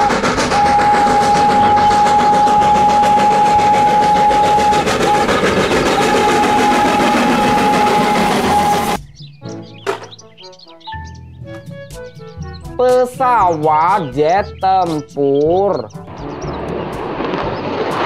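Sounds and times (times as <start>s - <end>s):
train rumble and clatter: 0.0s - 9.0s, 15.8s - 18.0s
high whistle tone: 0.0s - 9.1s.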